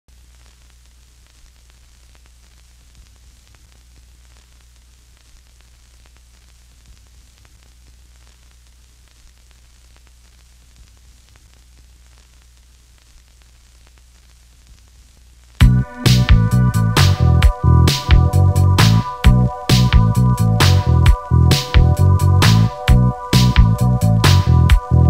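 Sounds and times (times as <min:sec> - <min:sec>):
faint crackles and clicks: 0:00.1 - 0:15.6
static hiss: 0:00.1 - 0:25.0
low hum: 0:15.6 - 0:25.0.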